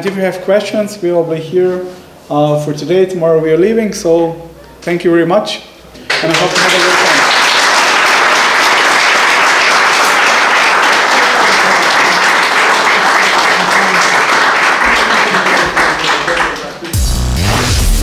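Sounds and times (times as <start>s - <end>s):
audience applauding: 6.1s - 17.0s.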